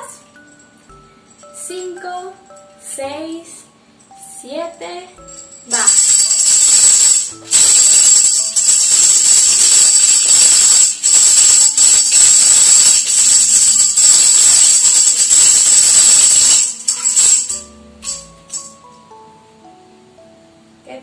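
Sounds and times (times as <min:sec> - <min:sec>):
tambourine jingling: 0:04.0 - 0:19.2.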